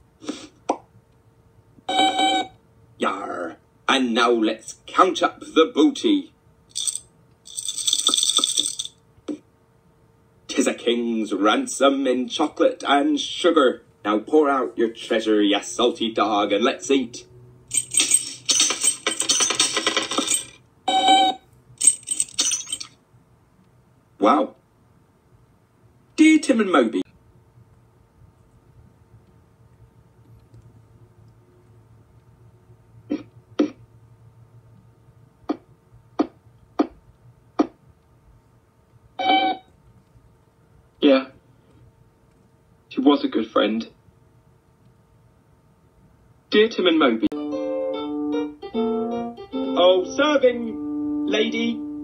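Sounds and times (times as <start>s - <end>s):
short pitched beep: 1.9s - 2.5s
candy pieces clattering: 6.7s - 8.9s, 17.7s - 20.6s, 21.8s - 22.9s.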